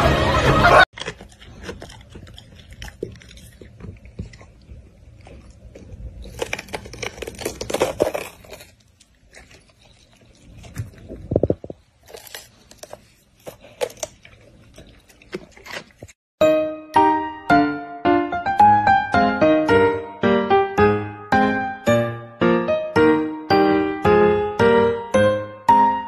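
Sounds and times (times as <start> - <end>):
dog chewing bell pepper: 0.9 - 16.2.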